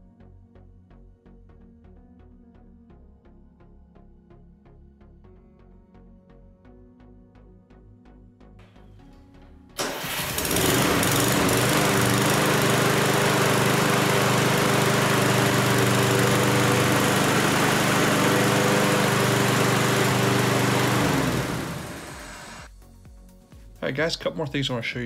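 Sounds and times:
lawn mower engine running: 9.8 - 22.7.

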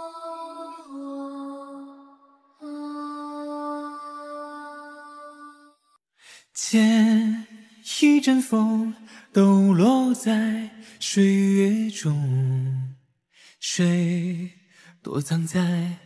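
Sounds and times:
solo voice singing long notes: 0.0 - 5.8.

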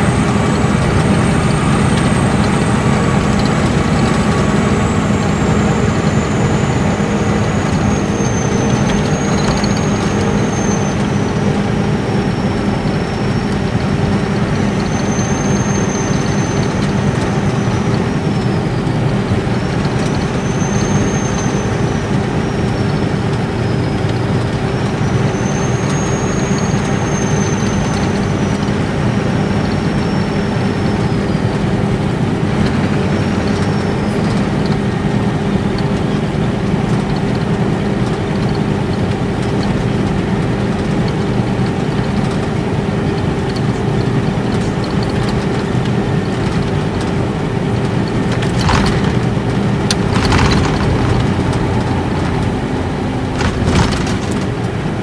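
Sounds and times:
diesel coach engine running: 0.0 - 55.0
high turbocharger whistle: 4.8 - 13.6, 25.0 - 28.7.

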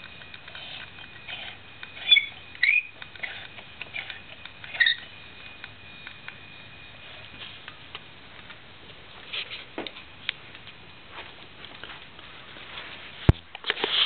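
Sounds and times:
lamp ballast high whine: 0.0 - 12.5
light crackling from lamps: 0.0 - 14.0
glass bulb squeaking in socket: 2.0 - 3.0.

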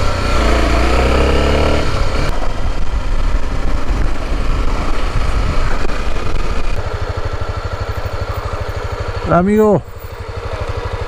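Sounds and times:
rushing wind noise: 0.0 - 7.7
motorcycle engine running: 0.0 - 11.0.

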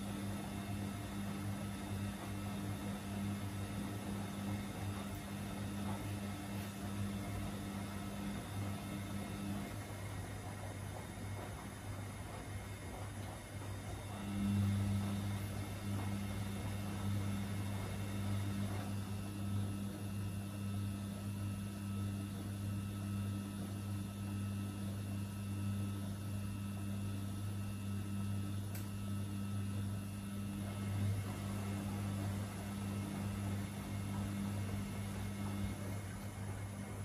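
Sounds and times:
washing machines running: 0.0 - 37.0
small click: 28.7 - 29.0.

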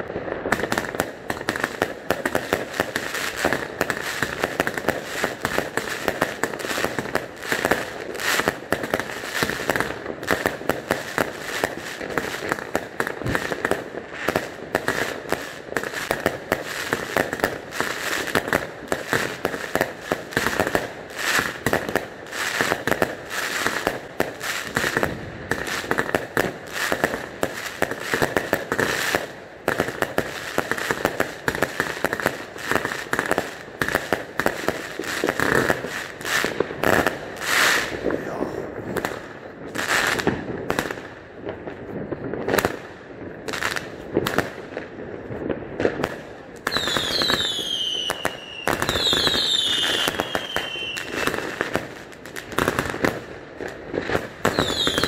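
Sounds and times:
fireworks rapid bangs: 0.0 - 41.1.

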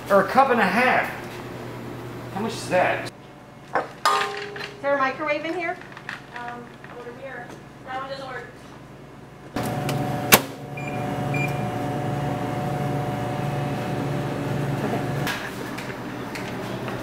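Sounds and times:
microwave humming: 0.0 - 3.6, 9.4 - 17.0
short keypad beeps: 10.8 - 11.6.

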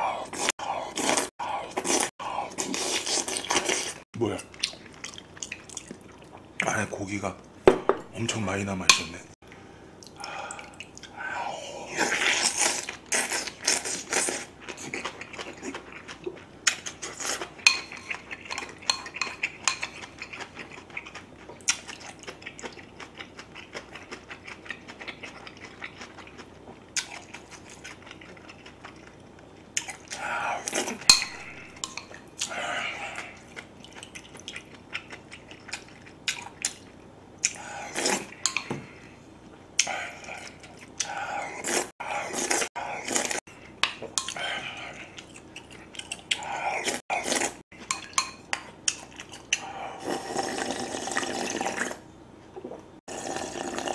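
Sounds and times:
slurping and chewing: 0.2 - 6.6, 10.0 - 39.1, 39.8 - 52.0, 52.6 - 53.9
spoon clinking on ceramic bowl: 31.1 - 32.2, 47.9 - 48.4.

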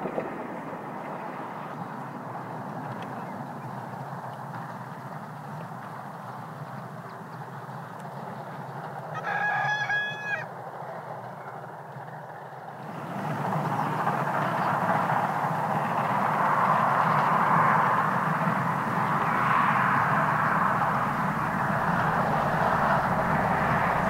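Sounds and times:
train rumbling along track: 0.0 - 24.0
loud rushing noise: 12.8 - 24.0.

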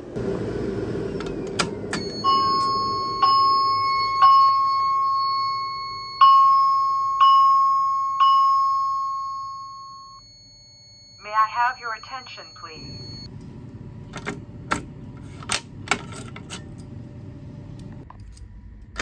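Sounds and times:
held ringing tone: 1.9 - 13.3.

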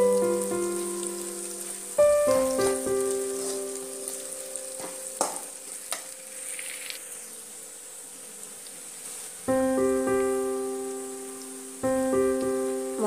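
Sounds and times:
piano music: 0.0 - 6.5, 9.4 - 13.0
oil sizzling in a pan: 0.0 - 13.0.

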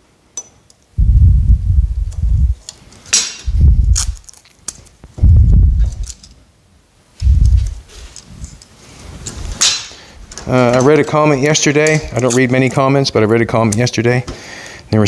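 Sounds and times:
low rumbling from handling: 1.0 - 2.6, 3.5 - 4.1, 5.2 - 6.1
tape ripping off roll: 3.7 - 5.0.

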